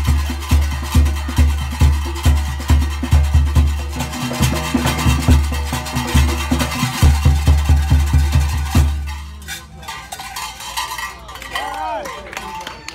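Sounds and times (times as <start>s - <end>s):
deep drum beats: 0.0s - 11.7s
higher percussion: 0.0s - 12.9s.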